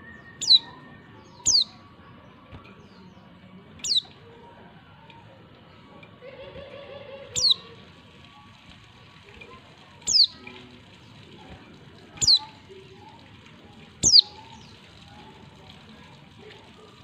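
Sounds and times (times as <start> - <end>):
bird call notes: 0.0 - 1.8, 3.8 - 4.2, 7.3 - 7.7, 10.1 - 10.4, 14.0 - 14.6.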